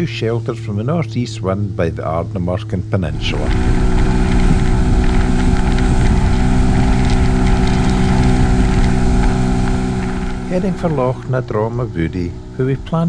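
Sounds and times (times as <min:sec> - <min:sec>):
outboard motor hum: 0:00.0 - 0:13.0
wake rushing: 0:03.0 - 0:13.0
wind noise: 0:03.1 - 0:12.6.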